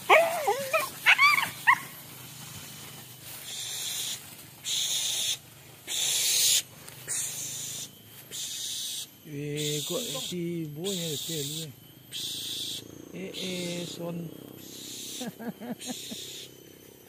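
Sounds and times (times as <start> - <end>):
dogs yelping and whining: 0.0 - 2.0
high hissing buzz: 0.0 - 17.0.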